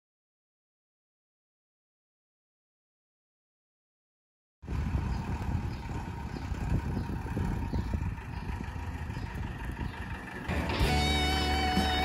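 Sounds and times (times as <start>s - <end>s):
minibus diesel engine rumbling: 4.6s - 12.0s.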